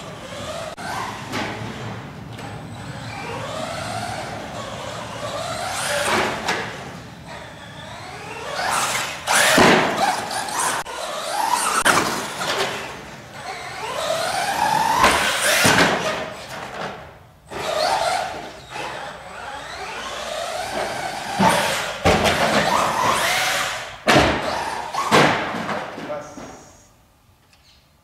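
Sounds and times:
rc truck motor whining: 0.0 - 1.3, 2.4 - 16.6, 17.5 - 25.1
knocks and thumps of toy truck: 8.6 - 13.0, 14.0 - 18.0, 20.5 - 26.2.

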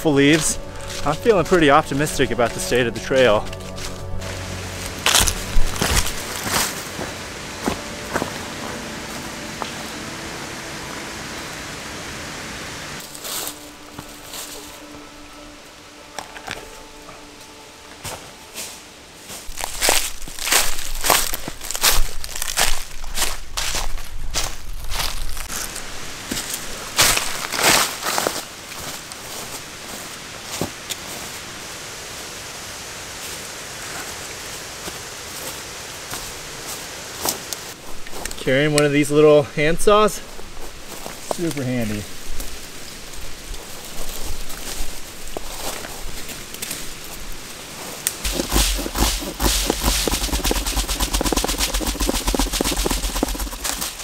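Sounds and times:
footsteps in dry leaves: 0.0 - 10.1, 13.0 - 32.3, 33.2 - 38.4, 40.2 - 54.0
outdoor hiss: 4.2 - 19.5, 25.4 - 54.0
steady rushing noise: 48.2 - 54.0.

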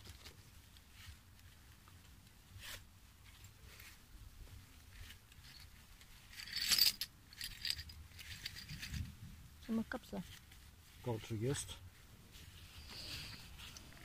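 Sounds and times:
coins clinking and jingling: 6.3 - 8.8.

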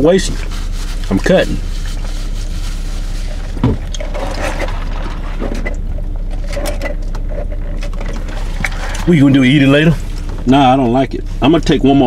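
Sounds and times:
car idling inside cabin: 0.0 - 12.0
thump: 3.6 - 3.8.

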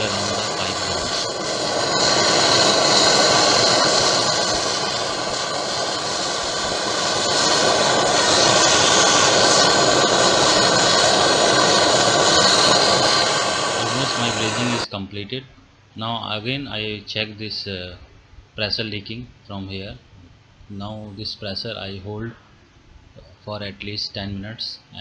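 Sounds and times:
gas torch flame hissing: 0.0 - 14.9.

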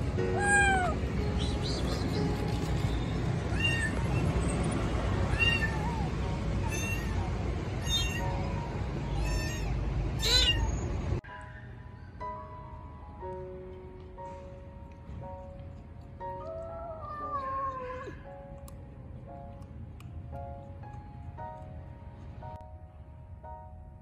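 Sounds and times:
soft music: 0.0 - 24.0
kitten meowing: 0.3 - 1.0, 3.5 - 4.3, 5.3 - 8.4, 9.1 - 10.8, 16.4 - 18.2.

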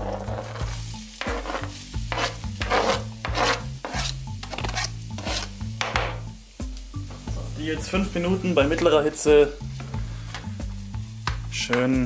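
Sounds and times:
knife scraping a cutting board: 0.0 - 5.6
background music with bass: 0.0 - 12.0.

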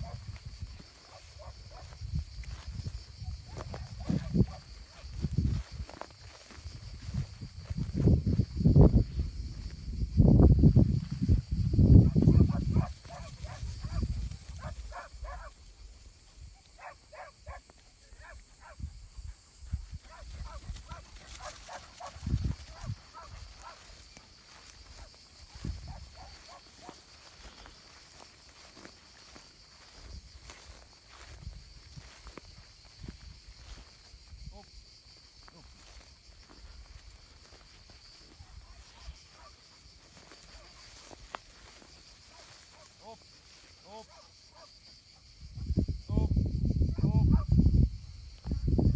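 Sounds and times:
distant dog barking: 0.0 - 0.3, 1.0 - 2.0, 3.5 - 5.0, 12.0 - 15.6, 16.7 - 18.8, 20.0 - 24.0, 25.8 - 27.0, 38.7 - 39.6, 40.4 - 41.1, 42.2 - 43.2, 43.9 - 44.8, 46.9 - 47.5
wind buffeting microphone: 0.0 - 15.5, 18.7 - 26.5, 29.9 - 34.6, 45.3 - 48.9
steady high-pitched hiss: 0.0 - 46.9.

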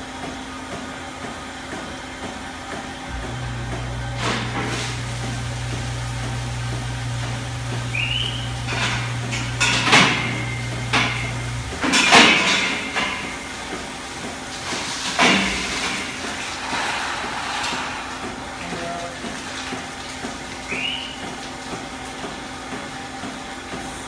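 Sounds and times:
steady low hum: 3.0 - 13.8.

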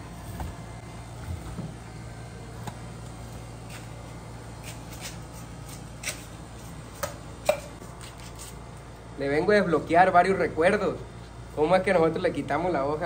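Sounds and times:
steady low hum: 0.0 - 13.0
knife scraping corn kernels: 4.6 - 8.6.

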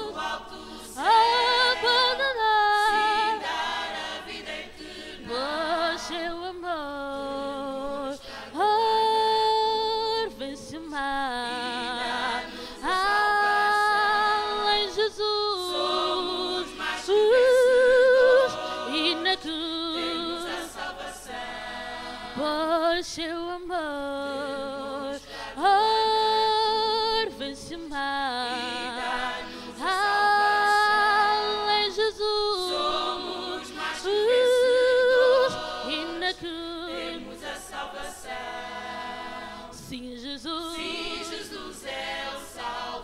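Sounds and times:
choir singing a cappella gospel: 0.0 - 43.0.

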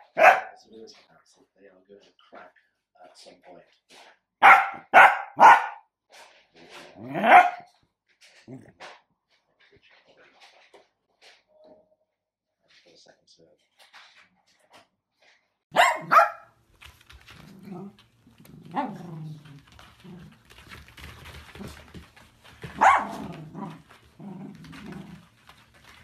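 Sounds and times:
dogs barking: 0.0 - 0.6, 4.4 - 5.8, 7.0 - 7.7, 15.7 - 16.5, 22.6 - 23.8
dogs growling: 6.8 - 7.4, 17.3 - 26.0.

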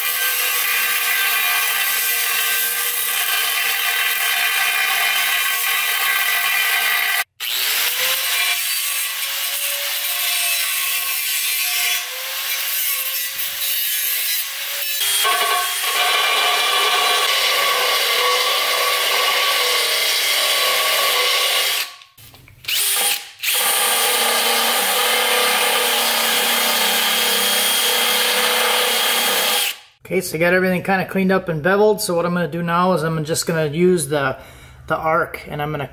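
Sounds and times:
angle grinder cutting metal: 0.0 - 29.9
cordless drill running: 5.8 - 8.2, 22.7 - 29.8.

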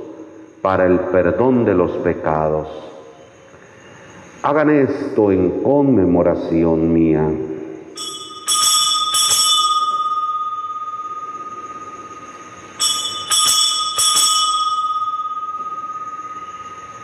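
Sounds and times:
altar bells ringing: 7.8 - 17.0.

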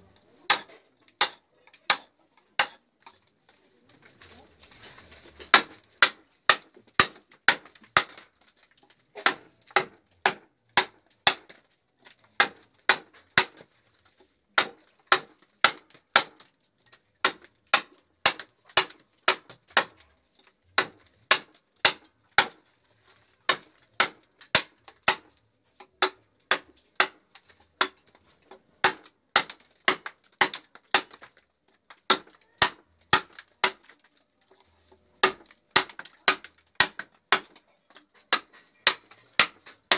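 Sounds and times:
mallet striking a chisel: 0.5 - 2.8, 20.8 - 22.6, 28.8 - 31.2, 35.2 - 37.6, 38.3 - 39.9.

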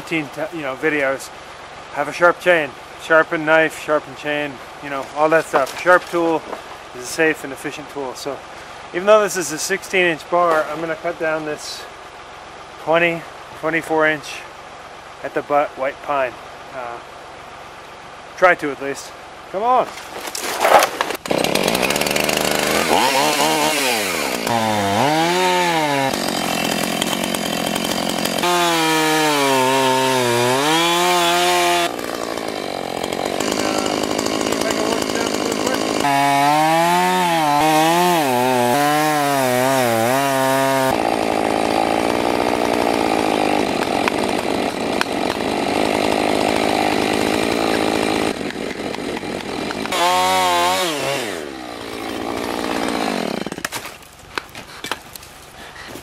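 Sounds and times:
chainsaw cutting wood: 19.9 - 56.0.

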